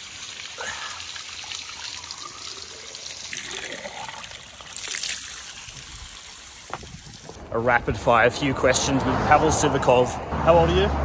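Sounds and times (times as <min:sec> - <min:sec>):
water pouring from fountain spout: 0:00.0 - 0:07.4.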